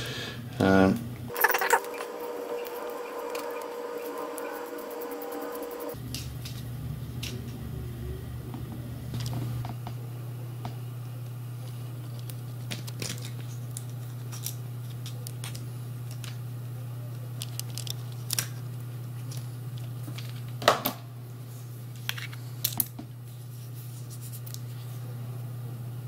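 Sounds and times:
low hum: 0.1s - 20.5s.

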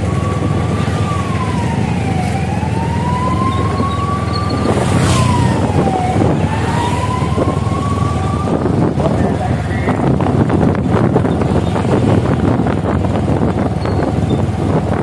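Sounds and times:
siren wailing: 0.0s - 10.4s
vehicle engine and wind rumble: 0.0s - 15.0s.

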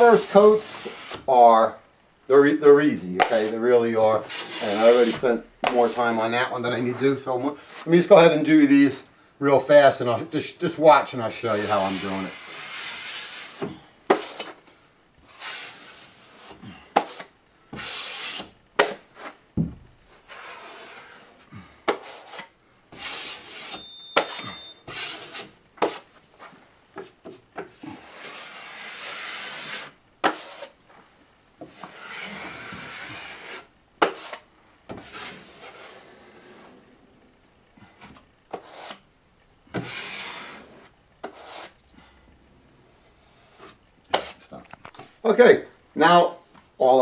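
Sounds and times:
taping knife scraping joint compound: 0.0s - 1.3s, 3.2s - 3.6s, 4.2s - 6.2s, 11.6s - 14.6s, 15.2s - 19.4s, 20.1s - 30.8s, 31.6s - 36.8s, 38.0s - 39.1s, 39.7s - 41.8s, 43.2s - 45.0s.

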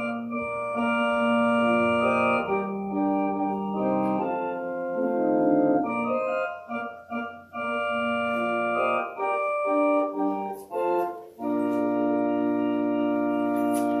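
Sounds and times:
organ playing sustained chords: 0.0s - 14.0s.

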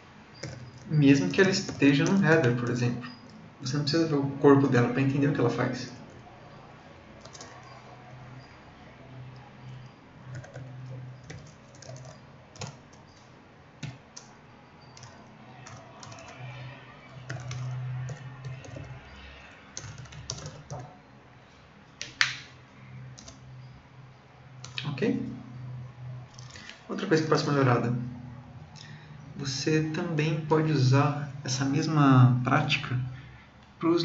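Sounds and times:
computer keyboard key clicks: 7.2s - 7.8s, 10.3s - 13.2s, 14.9s - 16.4s, 17.3s - 18.9s, 19.8s - 20.9s, 23.2s - 23.4s.

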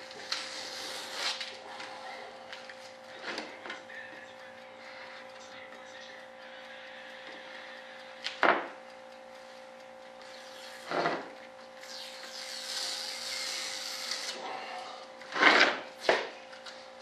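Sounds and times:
hand tool scraping plastic: 15.4s - 15.8s.

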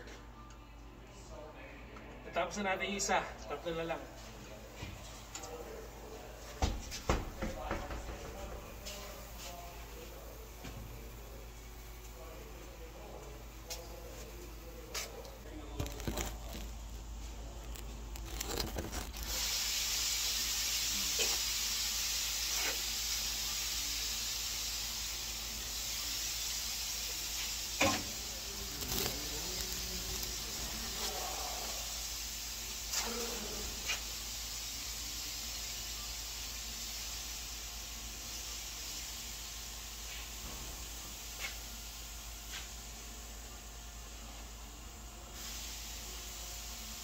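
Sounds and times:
compressed air hissing: 17.4s - 42.9s, 45.3s - 47.0s.

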